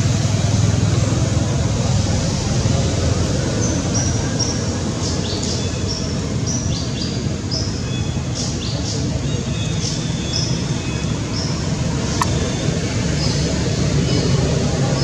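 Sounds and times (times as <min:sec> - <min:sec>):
low outdoor rumble: 0:00.0 - 0:15.0
birds chirping and whistling: 0:03.6 - 0:15.0.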